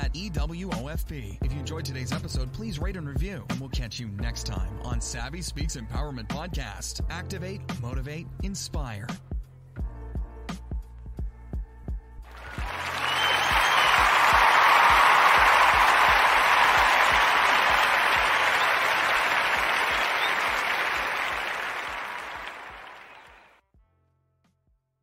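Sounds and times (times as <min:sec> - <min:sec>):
recorded applause: 0:12.3 - 0:23.6.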